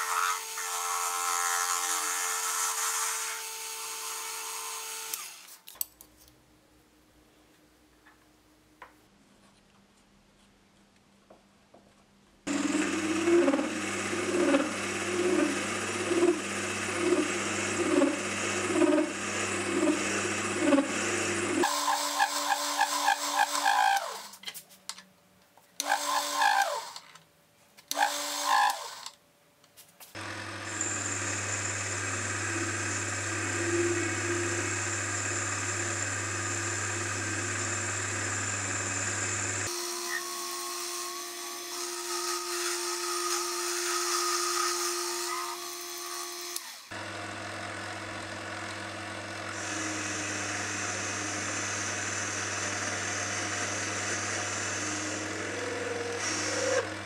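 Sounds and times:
machine hum and tones: 12.5 - 21.9, 30.2 - 37.2, 49.5 - 57.0
metal lathe cutting aluminium: 12.5 - 24.1, 30.2 - 40.2, 47.4 - 57.0.

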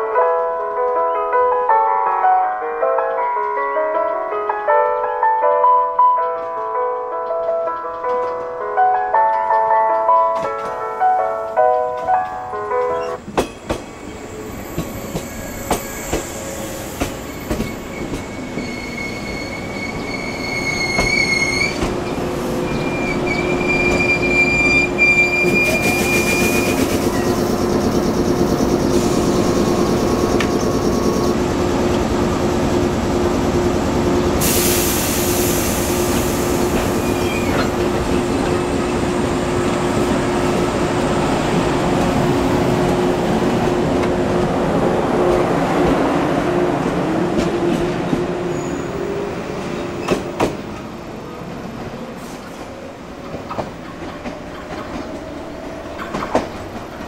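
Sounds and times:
standing train humming: 10.7 - 57.0
train wheels clicking over joints: 12.8 - 44.4, 46.8 - 57.0
train brakes squealing: 12.9 - 31.6, 34.4 - 38.5, 48.5 - 50.5
air hiss burst: 34.4 - 37.2.

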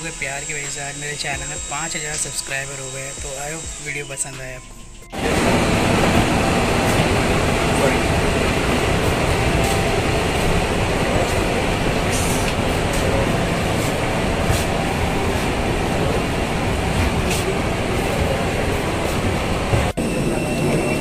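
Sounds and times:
rumble and hiss in jet bridge: 5.2 - 21.0.

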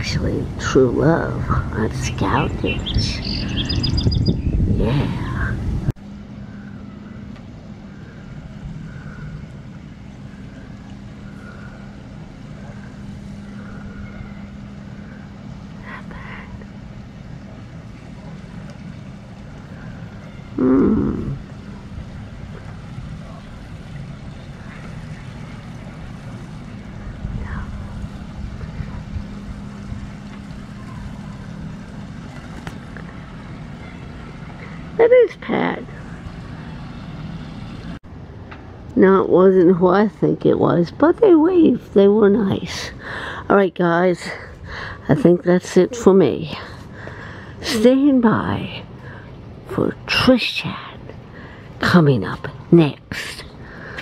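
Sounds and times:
wind rumbling on microphone: 0.0 - 35.1
motorboat engine humming: 0.0 - 52.7.

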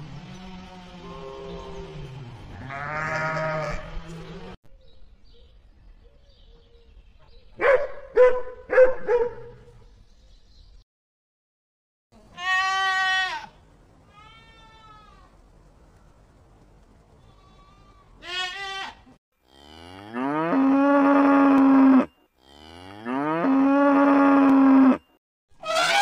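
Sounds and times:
sheep bleating: 2.5 - 4.0, 12.2 - 13.5, 17.3 - 19.1
goat bleating: 2.6 - 4.0, 12.2 - 15.4, 17.2 - 19.2, 25.6 - 26.0
sharp dog barks: 7.6 - 9.7.

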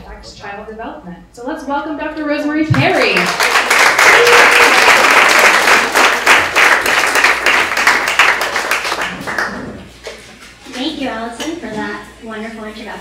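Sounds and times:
audience applauding: 2.8 - 10.2.

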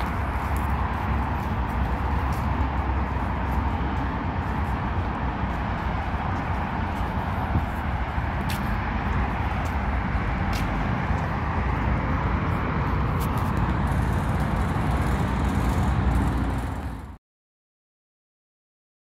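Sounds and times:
city traffic rumble: 0.0 - 17.2.

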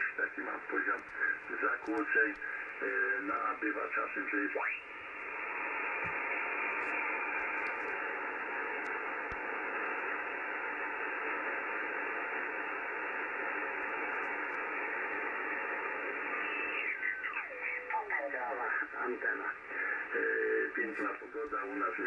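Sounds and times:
radio band noise hiss: 0.0 - 22.0.

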